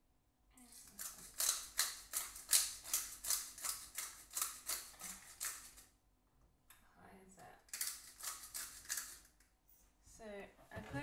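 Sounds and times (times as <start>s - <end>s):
pepper mill grinding: 0.7s - 5.9s, 7.6s - 9.4s.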